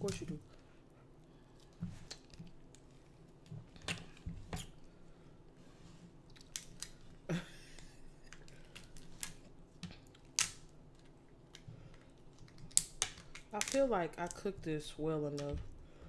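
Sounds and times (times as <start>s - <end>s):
lobster shell cracking: 6.3s - 7.1s, 7.8s - 14.4s.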